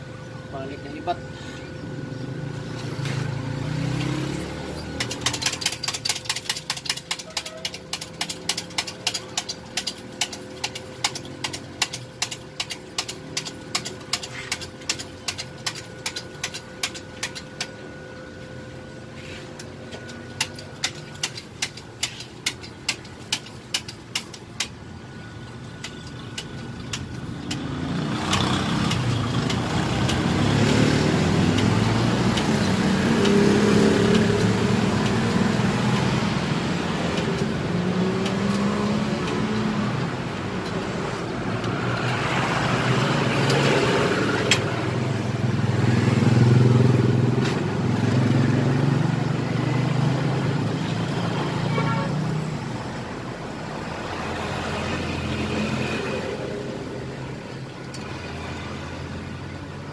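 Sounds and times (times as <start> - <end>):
vehicle engine running: 0.0 - 57.6
hand pump jack clicking: 5.0 - 17.7, 20.4 - 24.8, 25.6 - 27.6.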